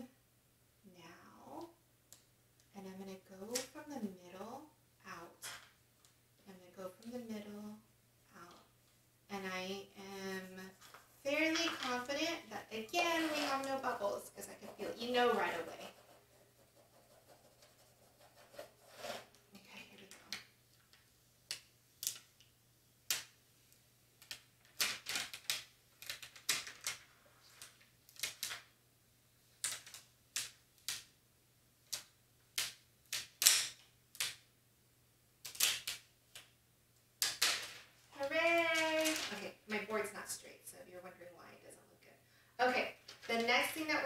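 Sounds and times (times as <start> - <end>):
scraper tool scraping tape: 18.2 - 19.4
tape peeling with crackling clicks: 24.2 - 28.7, 31.8 - 34.5, 35.4 - 36.5.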